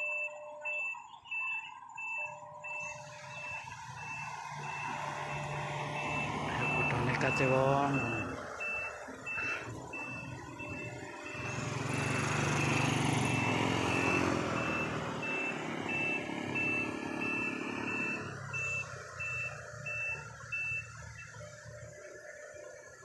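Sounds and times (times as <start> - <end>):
truck reversing beeper: 0.0 - 23.0
motorcycle engine passing: 2.8 - 20.5.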